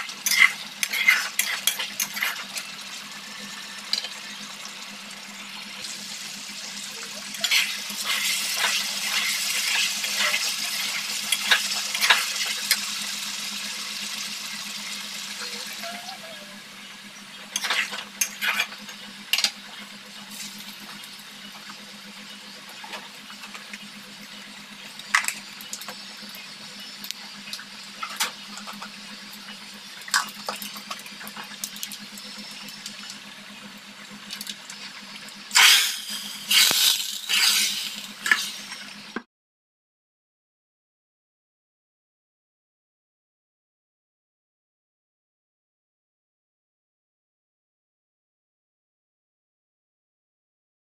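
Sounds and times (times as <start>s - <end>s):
meat sizzling in a wok: 0.0s - 39.2s
steady low hum: 0.0s - 39.2s
spatula scraping and clinking pan: 0.2s - 2.6s, 7.3s - 12.4s, 17.5s - 18.8s.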